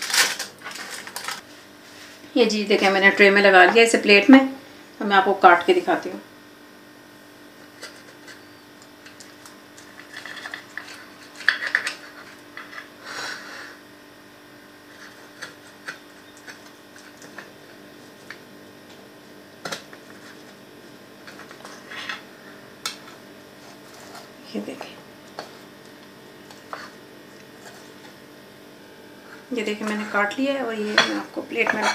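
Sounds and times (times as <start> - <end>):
faint steady hum: 0.0 - 31.9
knife scraping against plate: 30.8 - 31.9.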